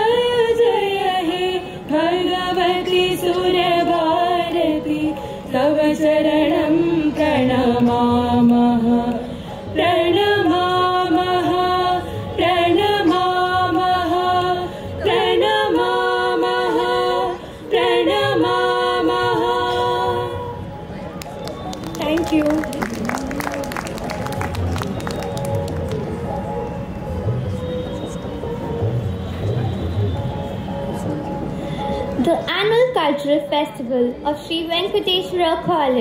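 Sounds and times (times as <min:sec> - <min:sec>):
voices singing unaccompanied: 0:00.0 - 0:20.7.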